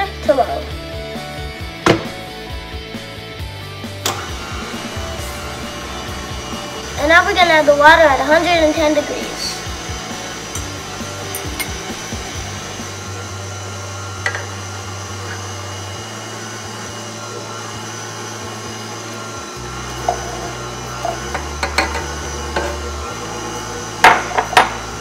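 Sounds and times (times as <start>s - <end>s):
stand mixer running: 0.8s - 25.0s
sharp knocks: 1.8s - 2.2s.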